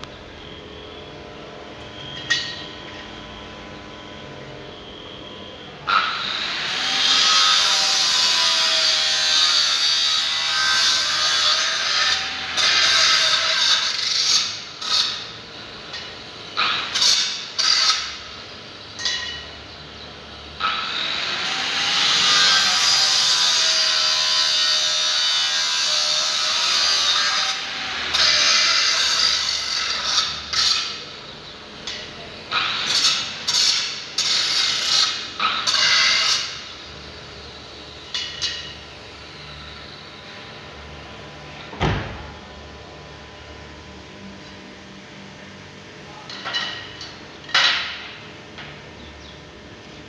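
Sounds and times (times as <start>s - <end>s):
angle grinder cutting steel: 5.8s - 18.4s, 20.6s - 31.2s, 31.8s - 40.2s.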